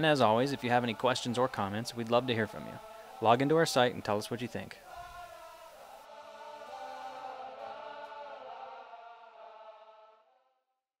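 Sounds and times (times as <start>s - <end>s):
sustained choir-like chord: 0.0s - 10.4s.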